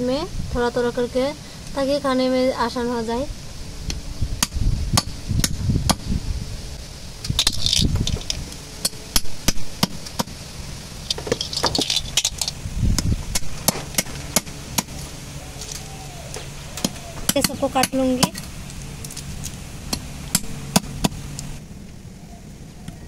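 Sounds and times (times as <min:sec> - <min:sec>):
snail shells clinking: 0:07.3 - 0:09.0, 0:11.0 - 0:12.6.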